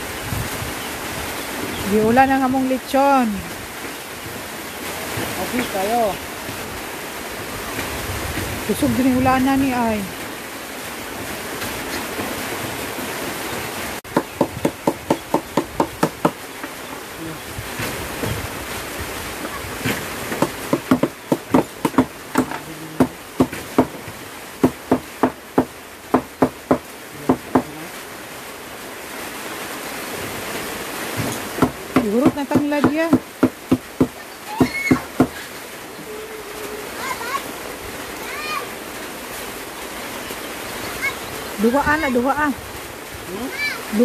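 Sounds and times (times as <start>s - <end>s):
cleaver chopping: 19.9s - 24.0s.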